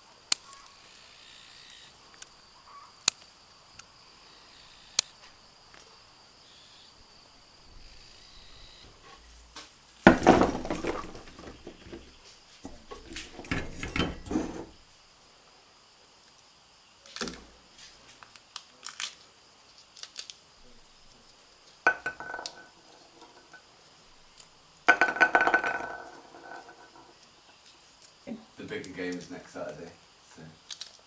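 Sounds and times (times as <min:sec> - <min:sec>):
pea pods splitting: 0:17.1 - 0:17.5, 0:18.2 - 0:20.4, 0:30.6 - 0:31.0.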